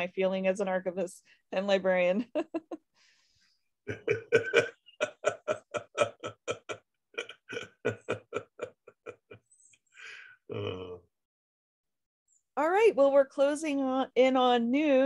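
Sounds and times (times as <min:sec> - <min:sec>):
man laughing heartily: 0:03.9 - 0:09.4.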